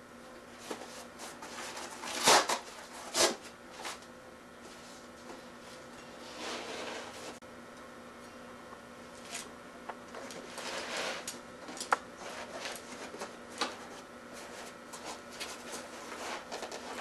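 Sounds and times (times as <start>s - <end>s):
pad rustling and scraping: 4.6s - 7.4s, 10.2s - 17.0s.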